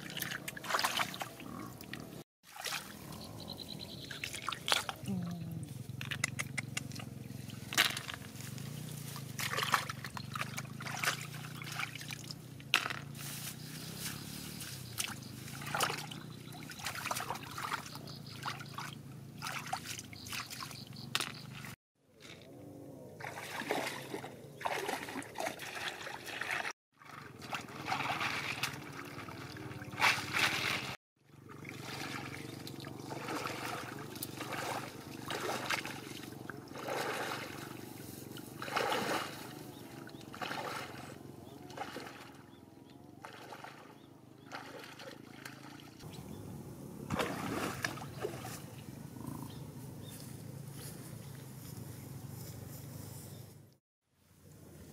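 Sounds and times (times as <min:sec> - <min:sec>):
hands splashing in muddy water: 0:00.0 - 0:01.4, 0:02.5 - 0:03.0, 0:09.3 - 0:12.3, 0:15.0 - 0:22.4, 0:23.2 - 0:31.0, 0:31.6 - 0:42.4, 0:43.2 - 0:45.9, 0:47.1 - 0:48.7
legs wading through water: 0:00.0 - 0:05.1, 0:05.9 - 0:22.4, 0:23.2 - 0:46.4, 0:47.0 - 0:50.6.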